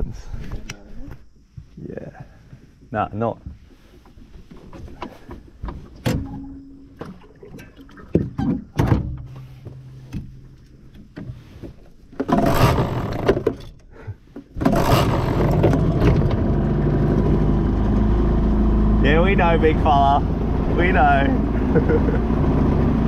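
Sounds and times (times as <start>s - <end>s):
outboard motor starting and running: 9.4s - 23.0s.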